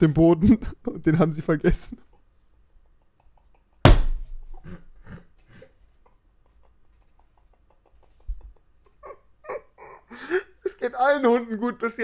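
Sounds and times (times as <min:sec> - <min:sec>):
man's stifled laughter: 0:04.6 - 0:10.8.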